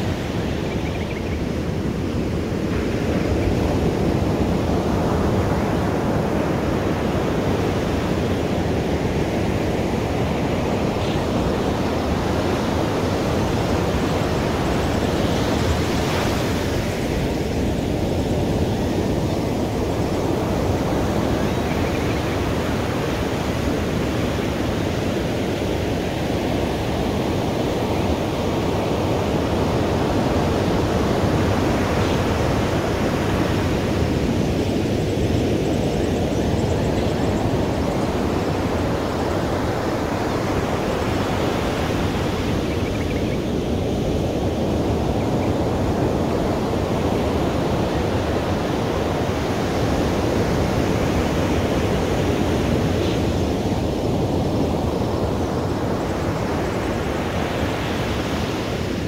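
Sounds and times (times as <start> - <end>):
waves washing on beach: 0.0 - 59.0.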